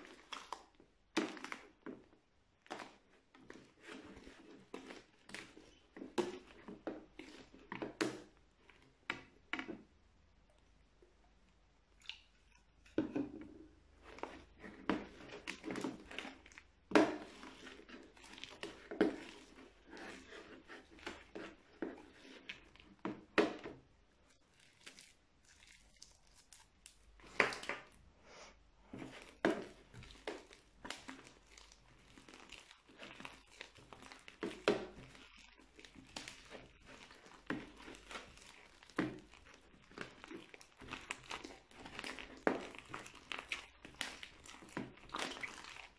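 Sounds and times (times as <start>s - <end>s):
crunchy slime being squeezed: 24.5s - 28.0s, 29.1s - 45.9s.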